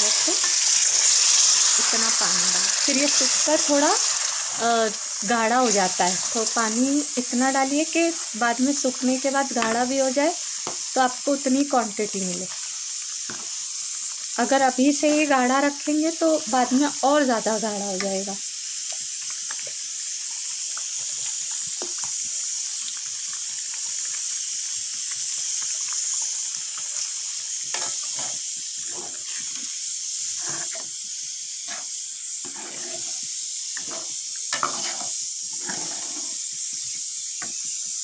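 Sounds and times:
gravy sizzling in a pan: 0:00.0 - 0:38.0
metal ladle scraping a pan: 0:27.7 - 0:29.7, 0:30.4 - 0:30.9, 0:31.7 - 0:36.4.

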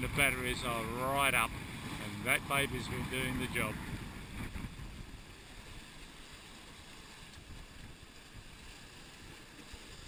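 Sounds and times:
wind buffeting microphone: 0:00.0 - 0:06.2
wind and sea water rushing: 0:00.0 - 0:10.0.

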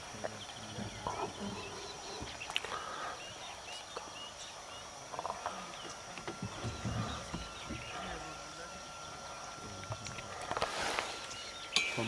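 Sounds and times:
high bird-like chirps: 0:11.2 - 0:12.0.

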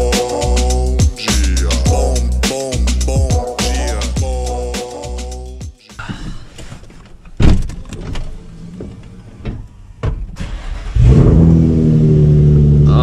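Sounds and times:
car engine starting and idling: 0:07.8 - 0:13.0.

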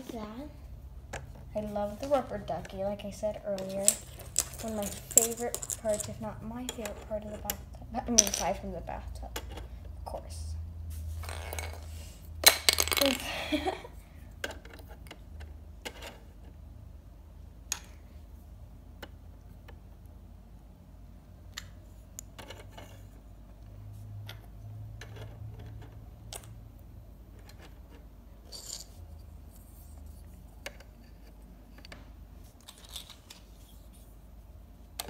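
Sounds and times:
low steady hum: 0:00.0 - 0:35.0.

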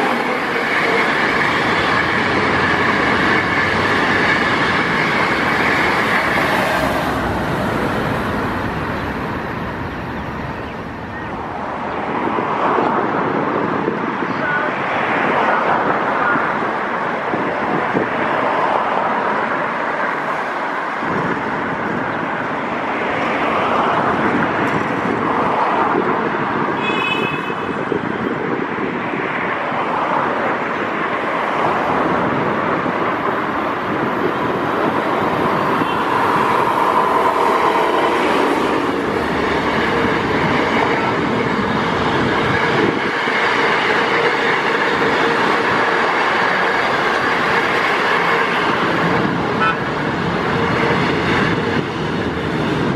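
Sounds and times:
diesel locomotive running: 0:00.0 - 0:12.1, 0:30.6 - 0:52.9
train coaches running over rails: 0:00.0 - 0:52.9.

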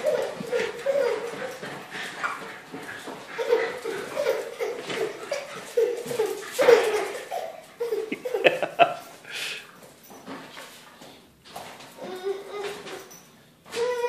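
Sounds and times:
high-pitched laughter: 0:03.3 - 0:09.2.

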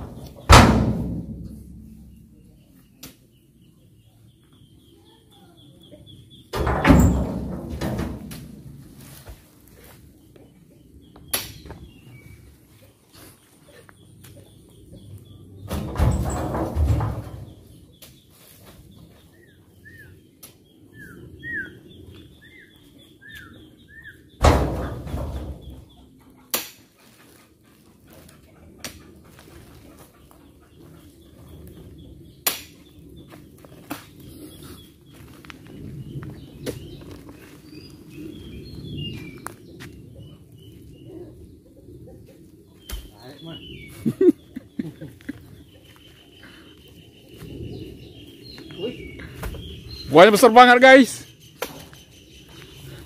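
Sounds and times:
heavy thud in steel truck bed: 0:00.1 - 0:02.2, 0:06.6 - 0:08.6, 0:24.4 - 0:25.8
bird chirping: 0:01.6 - 0:07.1, 0:17.3 - 0:24.5, 0:29.8 - 0:53.0
bird whistling calls: 0:20.9 - 0:24.2
rumble: 0:30.6 - 0:42.8.

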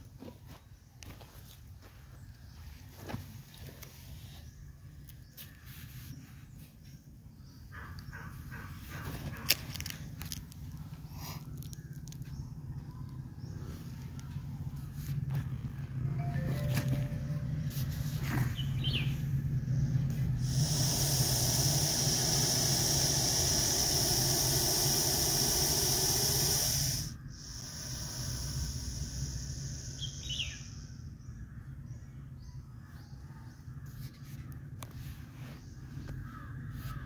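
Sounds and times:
bird chirping: 0:16.2 - 0:33.8
snake hissing: 0:20.1 - 0:30.8.

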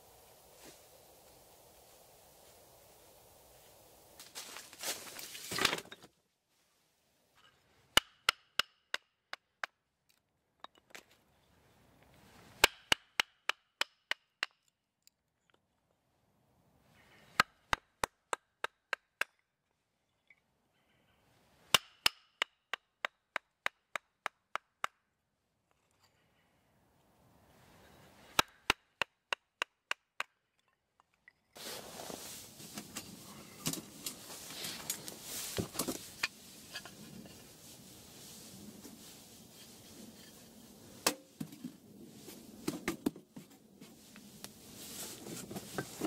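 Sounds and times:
rustle of movement: 0:00.0 - 0:05.6, 0:31.6 - 0:41.0, 0:43.4 - 0:46.0.

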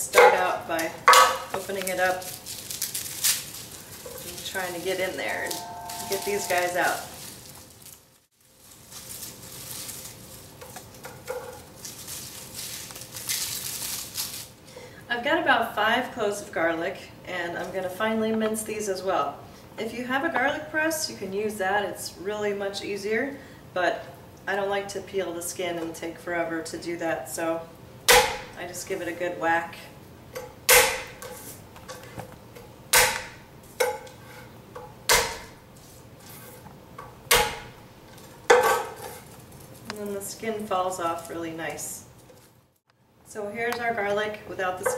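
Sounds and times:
garlic skins crackling: 0:00.2 - 0:14.6, 0:37.3 - 0:42.8
metallic ring of knife blade: 0:05.2 - 0:07.1
palm whacking knife blade: 0:30.7 - 0:31.2, 0:33.0 - 0:33.4, 0:37.3 - 0:37.7.

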